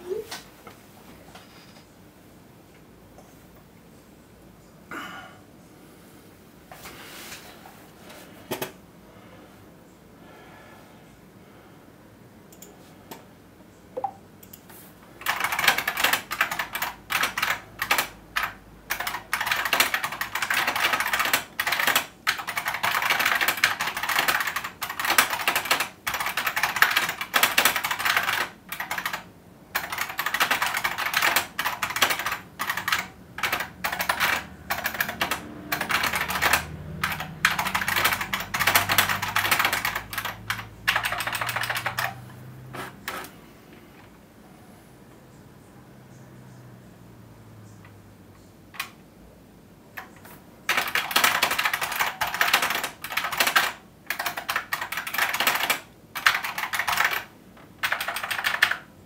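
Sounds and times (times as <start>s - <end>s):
keyboard typing clicks: 14.0s - 29.2s, 29.8s - 42.2s, 50.0s - 58.8s.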